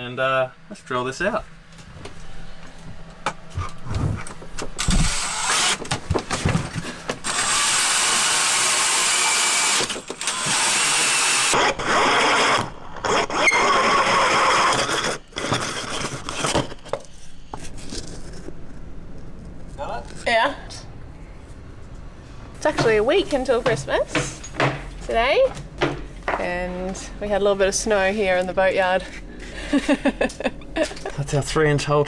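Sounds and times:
drill hole saw cutting fiberglass: 0:04.8 - 0:05.8, 0:07.2 - 0:16.5.

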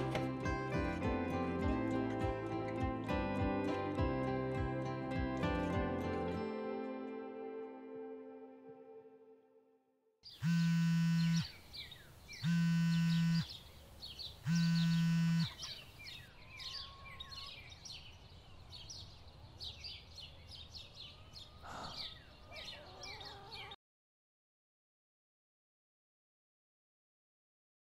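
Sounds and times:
birds chirping: 0:10.2 - 0:23.8
phone vibrating on wood: 0:10.4 - 0:11.5, 0:12.4 - 0:13.5, 0:14.5 - 0:15.8.

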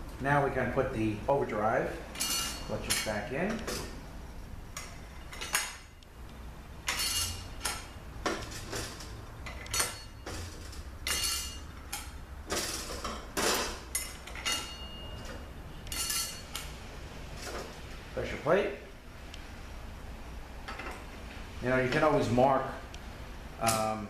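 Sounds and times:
metal clutch plates clinking: 0:06.9 - 0:16.7.

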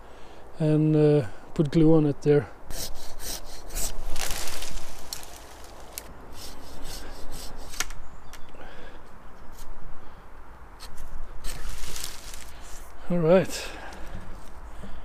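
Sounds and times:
hand saw rasping through branch: 0:02.7 - 0:07.8, 0:10.8 - 0:13.0.

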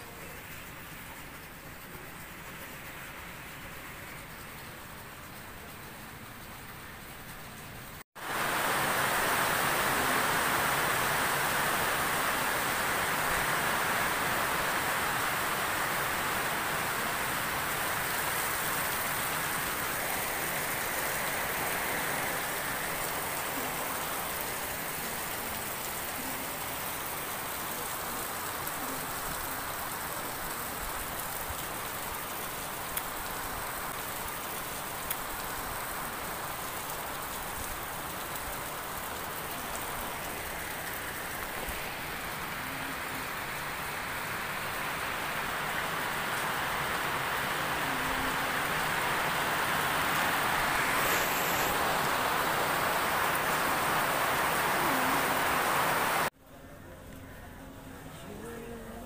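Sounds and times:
steady rain hiss: 0:00.0 - 0:59.0
faint ticks: 0:33.9 - 0:35.3.

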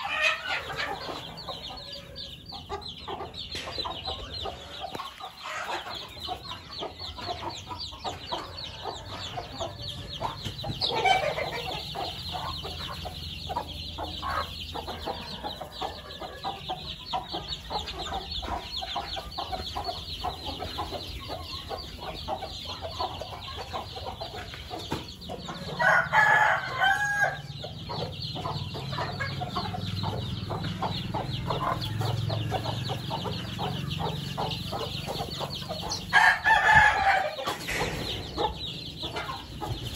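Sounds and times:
chicks peeping: 0:00.0 - 0:39.9
hens clucking: 0:00.0 - 0:39.9
rooster crowing: 0:25.8 - 0:27.5, 0:36.1 - 0:37.4.

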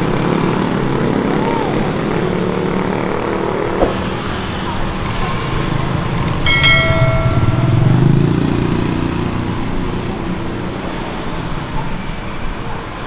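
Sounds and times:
street traffic drone: 0:00.0 - 0:13.0
clicks: 0:05.0 - 0:05.3
bell-like ding: 0:06.5 - 0:09.3.

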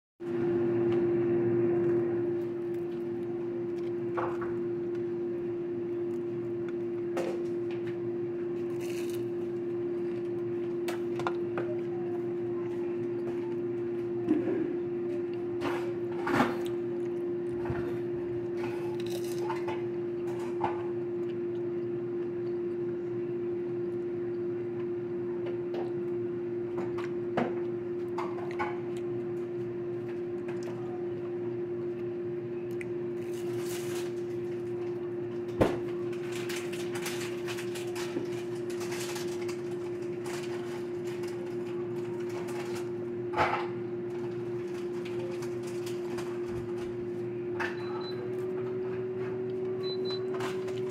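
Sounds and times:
low electrical hum: 0:00.2 - 0:50.9
crackly handling noises: 0:08.6 - 0:14.1, 0:18.6 - 0:21.7, 0:32.7 - 0:47.3.

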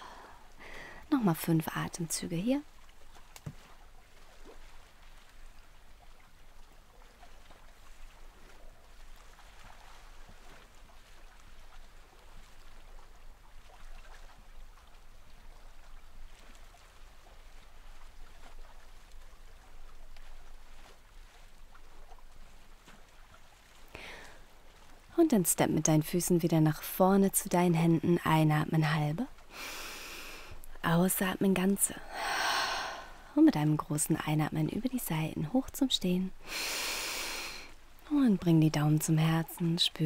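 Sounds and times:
person breathing slowly and deeply: 0:32.0 - 0:33.3.

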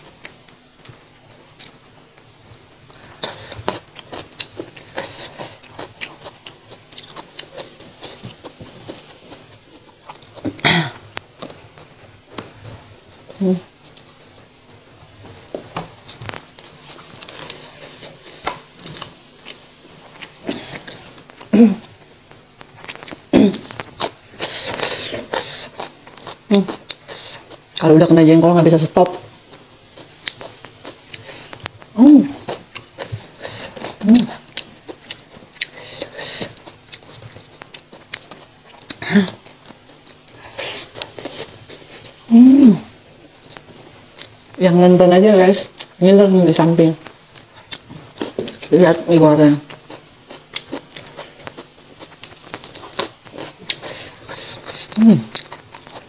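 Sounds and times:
chewing and crunching vegetables: 0:00.0 - 0:56.0.

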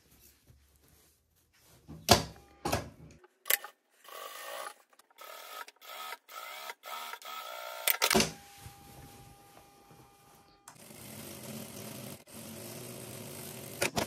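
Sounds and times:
sewing machine stitching: 0:10.7 - 0:14.0.

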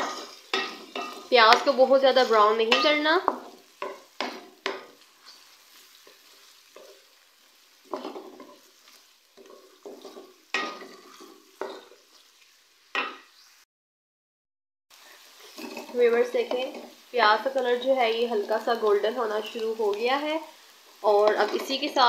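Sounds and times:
onions sizzling in oil: 0:00.0 - 0:13.7, 0:14.9 - 0:22.0
wooden spoon scraping pan: 0:07.9 - 0:12.0, 0:15.2 - 0:17.0.

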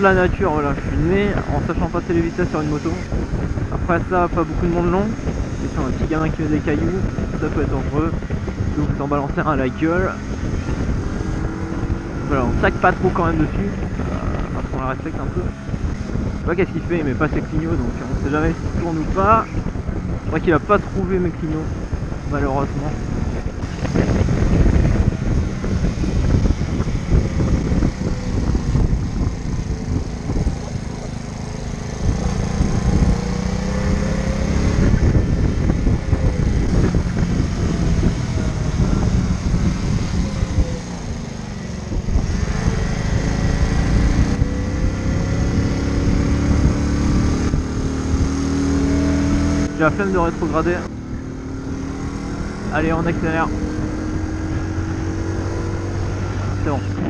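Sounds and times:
wind and road noise: 0:00.0 - 0:57.0
small motorcycle engine: 0:23.6 - 0:57.0.

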